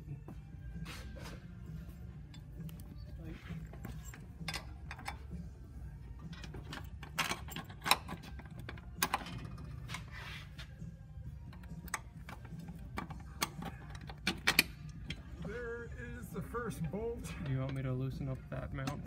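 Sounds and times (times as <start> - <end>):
steady low hum: 0.0 - 19.0
metal tool clicks and clinks: 3.8 - 5.5.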